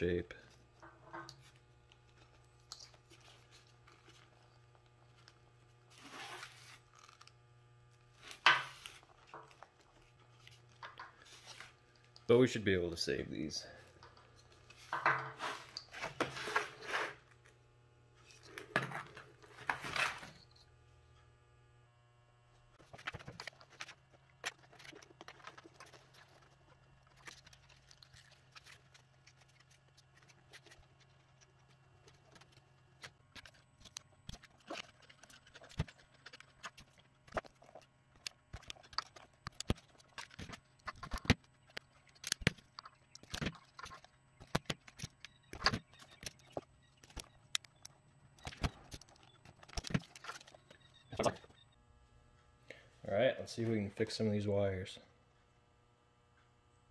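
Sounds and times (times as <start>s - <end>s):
faint steady hum: 0.0s - 56.9s
small clicks of wires and plastic: 0.8s - 5.4s, 27.1s - 51.6s.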